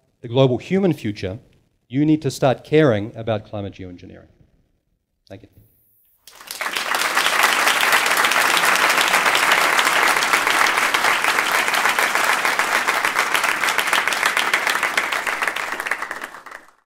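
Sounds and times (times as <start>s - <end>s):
audience applauding: 6.2s - 16.9s.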